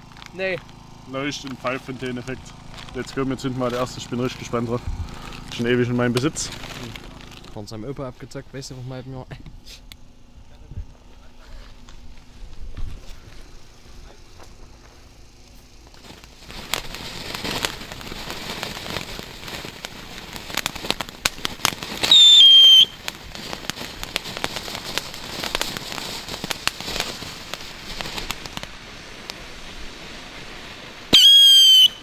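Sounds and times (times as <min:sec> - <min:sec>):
firework fountain hissing and crackling: 0:00.0 - 0:32.0
firework whistle: 0:16.0 - 0:28.7, 0:29.7 - 0:32.0.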